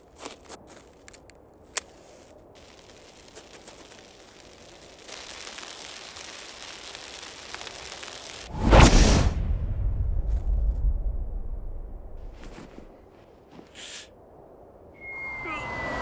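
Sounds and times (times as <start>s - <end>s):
bomb fuse sizzling: 2.0s - 10.9s.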